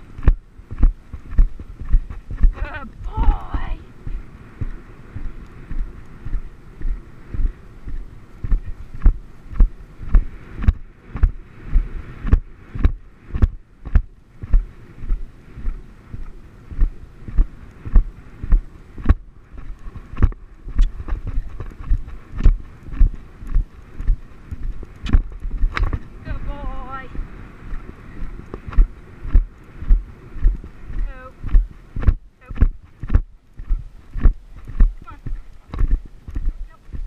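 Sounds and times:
horse hoofbeats on turf: 28.5 - 37.0.

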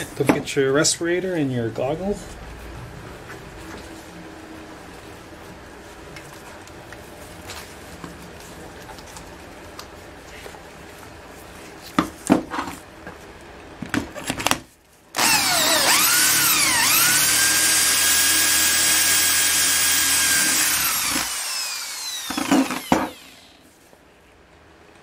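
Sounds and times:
electric drill boring through plastic: 15.2 - 23.6.

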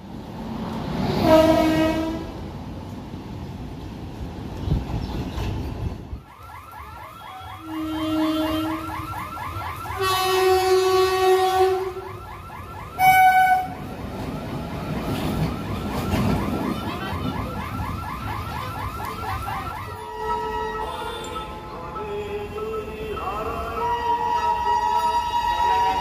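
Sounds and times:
two-tone locomotive horn blasts: 1.2 - 2.4, 7.4 - 9.1, 9.8 - 12.1, 13.0 - 13.9, 20.0 - 26.0
fast-warbling electronic alarm: 6.3 - 10.2.

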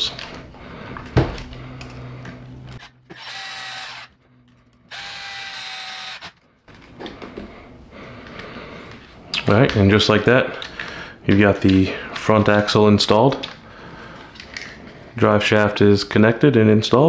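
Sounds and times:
electric screwdriver whining: 2.8 - 4.2, 4.8 - 6.4.

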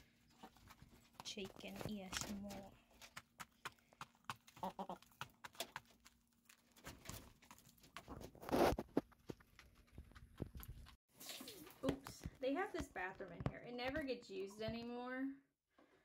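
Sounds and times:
hen clucking: 4.4 - 5.3.

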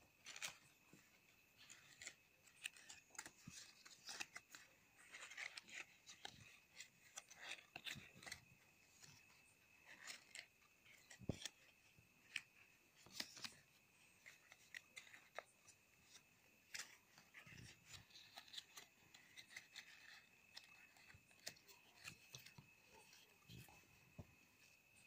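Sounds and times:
faint high whine: 0.0 - 25.0
paper crinkling: 0.2 - 25.0.

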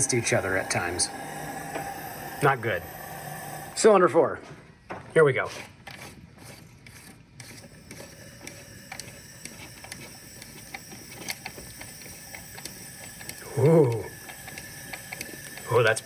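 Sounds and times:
mechanical clicking: 6.9 - 16.0.

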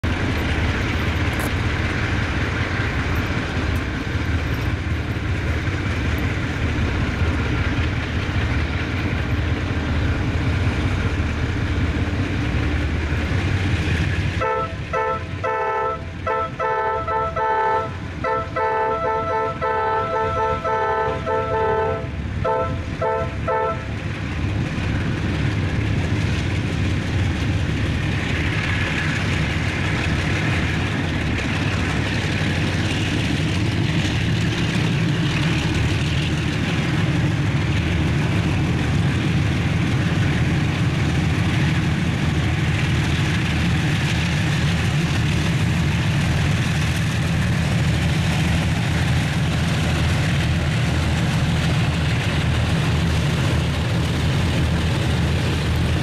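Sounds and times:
locomotive engines rumbling: 0.0 - 56.0
train air horn blasts: 14.4 - 23.9.

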